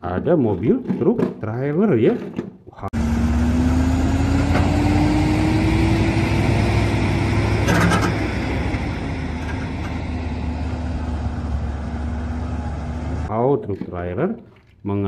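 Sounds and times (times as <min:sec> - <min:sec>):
truck diesel engine drone: 0:02.9 - 0:13.3.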